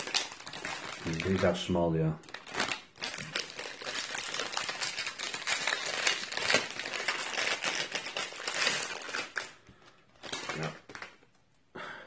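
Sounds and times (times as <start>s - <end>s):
plastic wrappers crinkling: 0.0s - 11.4s.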